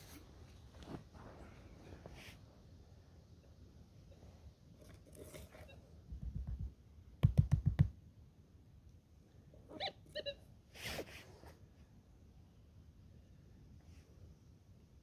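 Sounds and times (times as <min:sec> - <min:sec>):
brief scrape: 0:10.8 - 0:11.6.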